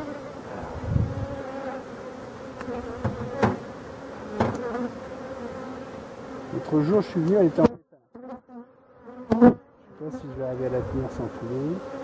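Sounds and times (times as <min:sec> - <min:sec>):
honeybees buzzing: 0:00.0 - 0:12.0.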